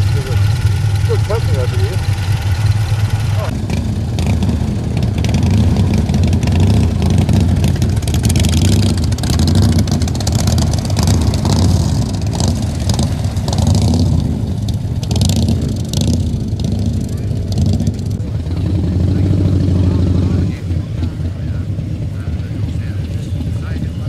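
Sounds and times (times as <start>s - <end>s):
motorcycle engines running: 0.0s - 24.0s.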